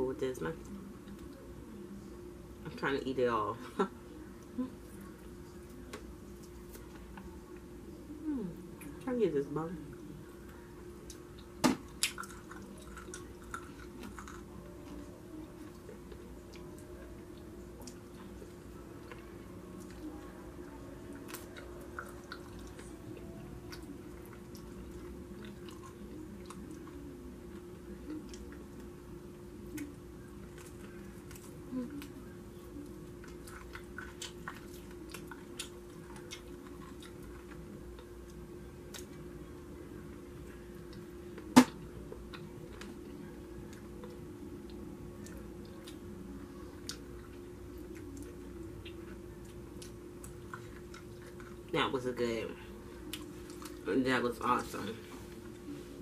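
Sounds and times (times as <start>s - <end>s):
faint steady hum: 0.0s - 56.0s
person chewing: 11.0s - 20.3s, 21.1s - 28.9s, 29.6s - 39.2s, 46.7s - 51.7s
lip smacks and mouth clicks: 29.7s - 30.0s.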